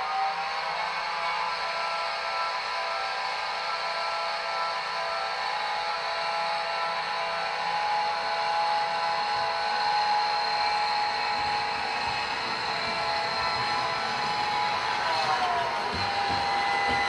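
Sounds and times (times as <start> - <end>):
model train motor whirring: 0.0 - 17.0
wheels rolling on rails: 10.7 - 17.0.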